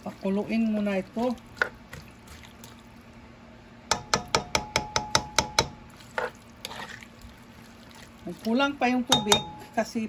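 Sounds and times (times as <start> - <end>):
low steady hum: 0.0 - 10.0
spatula knocking against wok: 3.9 - 5.8, 9.1 - 9.7.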